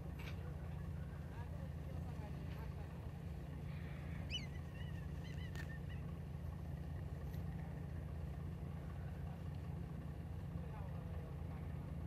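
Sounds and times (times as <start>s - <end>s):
high chirping calls: 4.2s - 6.0s.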